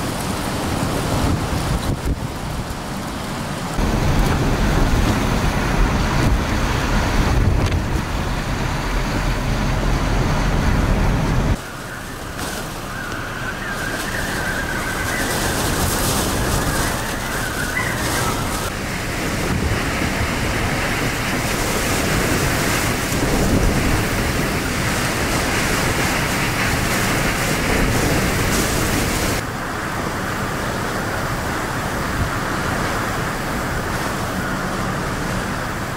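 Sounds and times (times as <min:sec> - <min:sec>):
wind buffeting microphone: 0:00.0 - 0:12.2, 0:12.9 - 0:35.9
heavy rain: 0:00.0 - 0:35.9
strong wind: 0:00.0 - 0:35.9.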